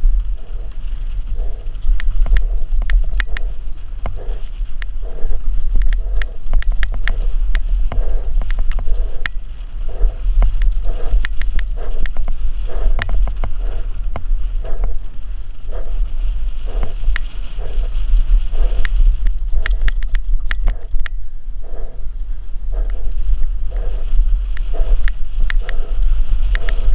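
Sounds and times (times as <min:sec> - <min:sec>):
wind rumble on microphone: 0:00.0 - 0:26.9
bike clicks and rattles: 0:16.7 - 0:21.2.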